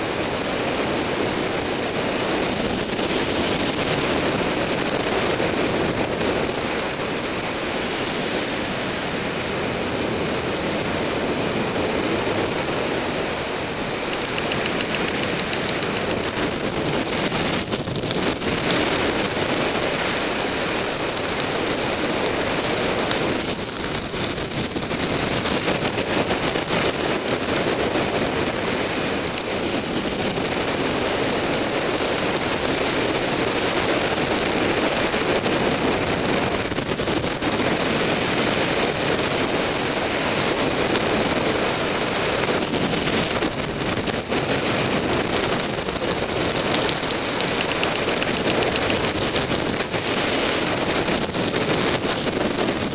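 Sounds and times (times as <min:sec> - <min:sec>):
wind rushing over microphone: 0:00.0 - 0:52.9
rapid flutter: 0:45.4 - 0:50.6.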